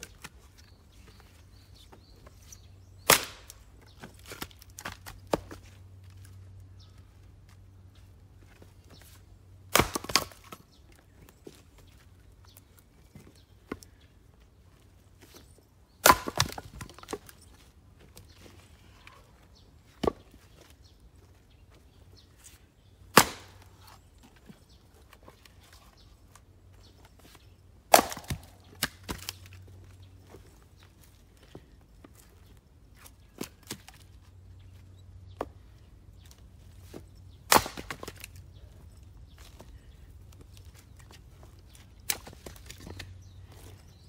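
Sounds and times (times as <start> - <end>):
axe chopping wood: 3.0 - 3.6, 9.7 - 10.6, 16.0 - 17.3, 23.1 - 23.7, 27.9 - 29.4, 36.9 - 38.4.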